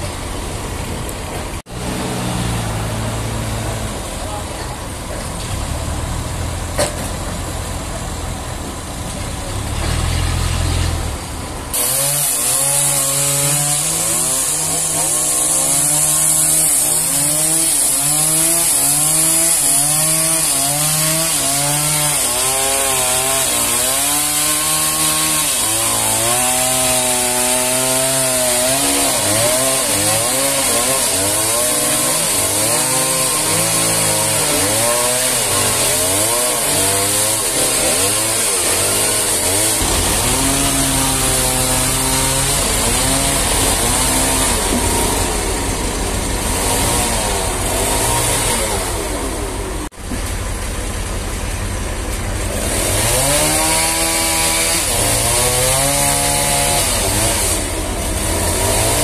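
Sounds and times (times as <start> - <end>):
chainsaw cutting log: 11.7 - 50.3, 52.4 - 59.0.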